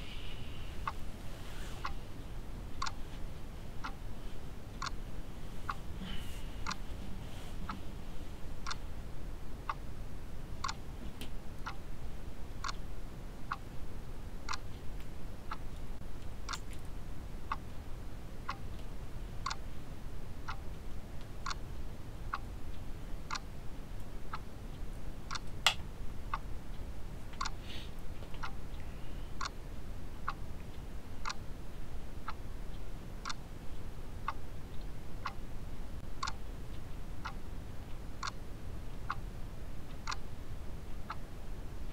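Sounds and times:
faint low room hum: 0:00.0 - 0:41.9
clock ticking: 0:02.8 - 0:03.0, 0:03.8 - 0:04.0, 0:04.6 - 0:05.0, 0:06.6 - 0:06.9, 0:08.6 - 0:08.9, 0:10.6 - 0:10.9, 0:11.6 - 0:11.9, 0:12.6 - 0:13.8, 0:14.4 - 0:15.8, 0:18.4 - 0:18.8, 0:19.4 - 0:19.6, 0:20.4 - 0:27.6, 0:28.4 - 0:28.8, 0:30.2 - 0:31.5, 0:32.2 - 0:33.5, 0:34.2 - 0:39.3, 0:39.9 - 0:40.3.

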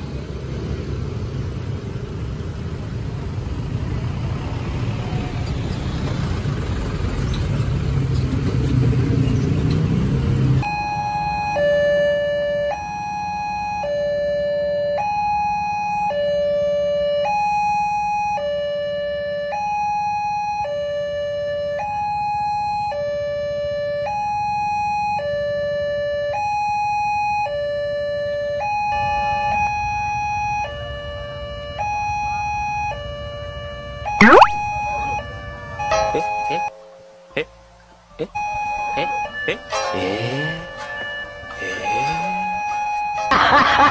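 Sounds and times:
cars and motorcycles passing: 0:00.0 - 0:10.6
two-tone level crossing alarm: 0:10.6 - 0:36.7, 0:38.2 - 0:43.8.

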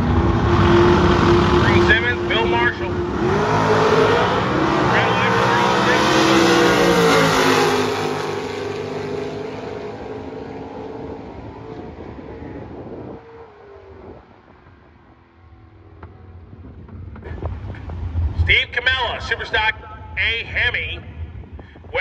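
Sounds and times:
drag car engines at full throttle: 0:00.0 - 0:22.0
wind: 0:00.0 - 0:22.0.

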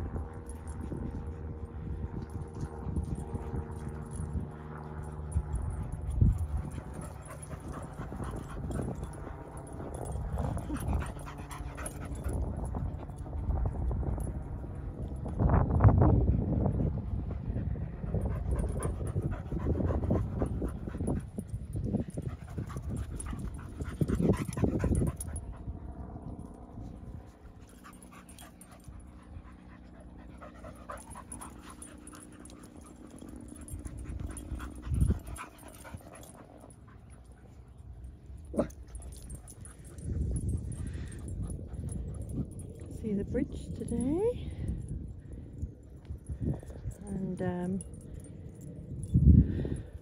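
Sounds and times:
paramotor engine droning overhead: 0:00.0 - 0:50.0
dog panting: 0:04.8 - 0:13.5, 0:16.4 - 0:25.7, 0:27.4 - 0:44.2.

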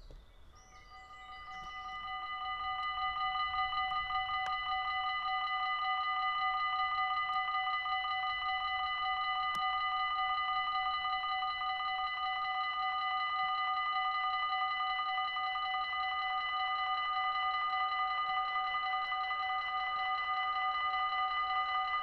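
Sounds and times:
level-crossing warning bell ringing: 0:00.7 - 0:22.0.

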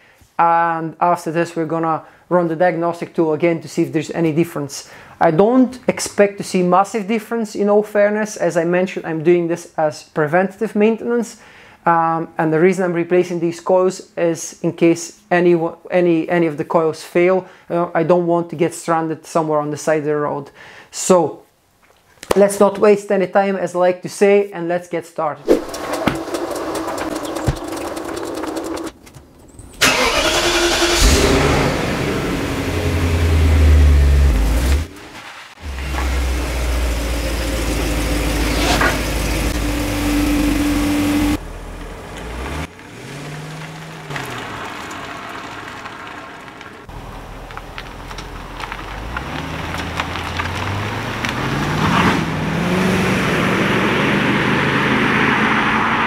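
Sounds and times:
car engine running: 0:25.6 - 0:29.0, 0:29.8 - 0:34.9, 0:35.6 - 0:52.0.

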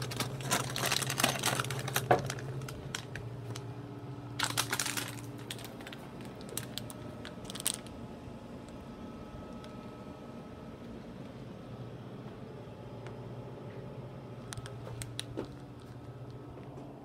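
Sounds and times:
bag rustle: 0:00.0 - 0:03.6, 0:04.4 - 0:07.9
snack bag crinkling: 0:00.0 - 0:03.7, 0:04.3 - 0:08.0, 0:14.5 - 0:16.4
vending machine flap clicks and rattles: 0:00.0 - 0:03.7
low machine hum: 0:00.0 - 0:17.0.

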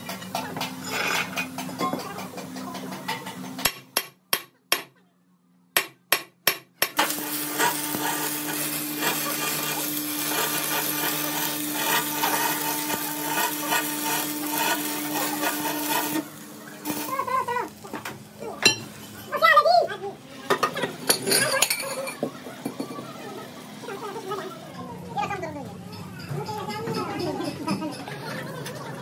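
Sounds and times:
hammer striking steel: 0:03.6 - 0:05.0, 0:05.8 - 0:07.1
machine humming: 0:07.0 - 0:18.6.

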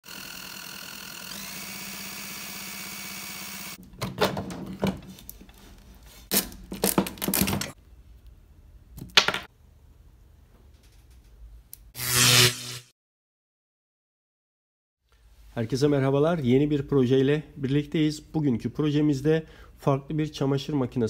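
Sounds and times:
drill spinning motor whine: 0:00.0 - 0:03.8.

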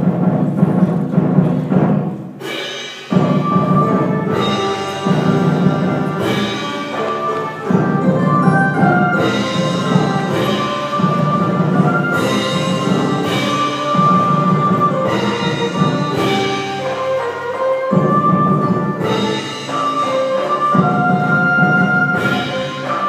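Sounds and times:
drums and percussion beat: 0:00.0 - 0:23.0.

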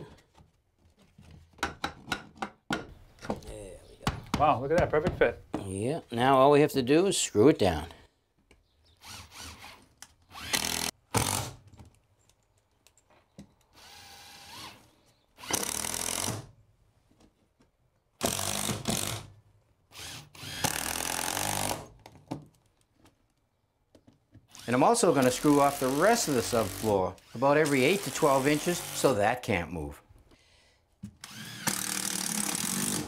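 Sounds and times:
cordless drill driving screws: 0:09.0 - 0:11.6, 0:13.7 - 0:16.5, 0:18.2 - 0:19.3, 0:19.9 - 0:21.9, 0:24.5 - 0:29.2, 0:31.2 - 0:33.0.

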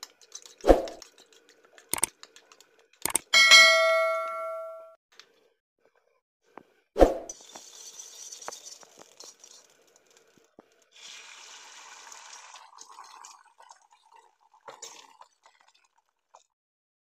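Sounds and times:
egg sizzling in hot oil: 0:07.3 - 0:16.4.

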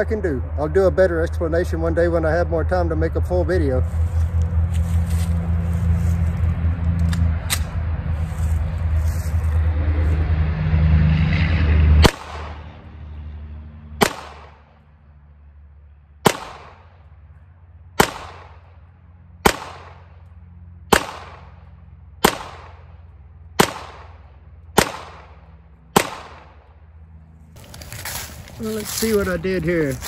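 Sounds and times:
low rumble: 0:00.0 - 0:30.0
pistol shots with echo: 0:14.0 - 0:14.7, 0:16.2 - 0:16.9, 0:18.0 - 0:18.7, 0:19.4 - 0:20.1, 0:20.9 - 0:21.6, 0:22.2 - 0:22.9, 0:23.6 - 0:24.2, 0:24.8 - 0:25.4, 0:26.0 - 0:26.6.

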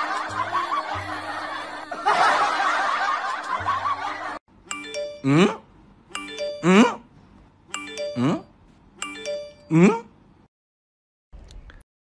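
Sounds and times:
laughter: 0:00.0 - 0:04.4
chime-like music jingle: 0:04.7 - 0:05.6, 0:06.2 - 0:06.8, 0:07.7 - 0:09.7.

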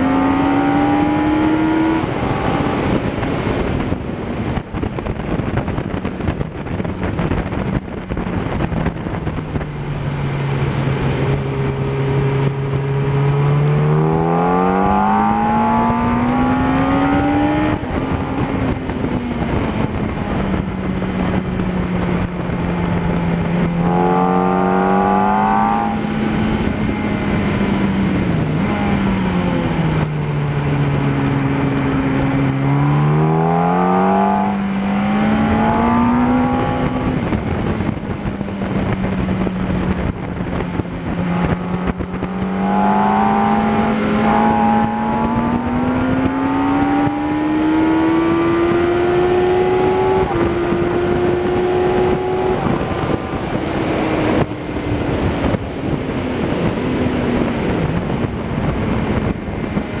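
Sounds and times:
motorcycle engine accelerating: 0:00.0 - 1:00.0.

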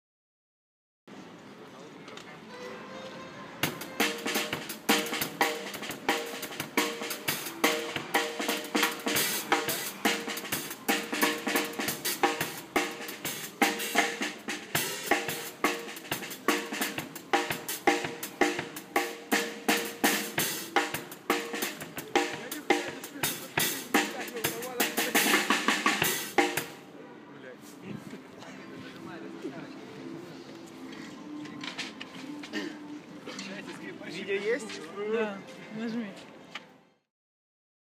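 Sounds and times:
drum kit playing fast beat: 0:03.6 - 0:26.8.

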